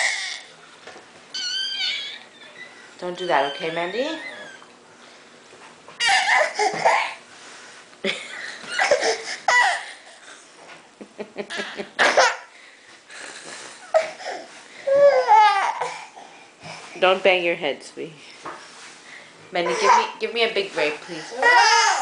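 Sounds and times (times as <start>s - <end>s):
toddler crying: 0.0s - 0.5s, 1.4s - 2.6s, 6.0s - 7.2s, 14.0s - 16.1s, 21.2s - 22.0s.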